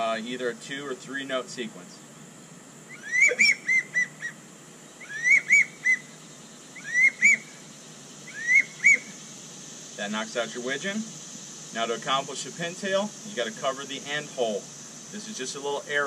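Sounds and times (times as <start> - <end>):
duck call whistle notes: 3.0 - 4.1.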